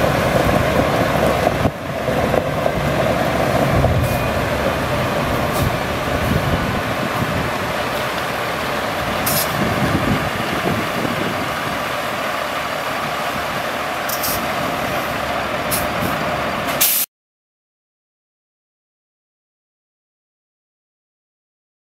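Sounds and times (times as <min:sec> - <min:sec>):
diesel truck engine running: 0:00.0 - 0:17.0
short sharp hisses: 0:16.8 - 0:17.1.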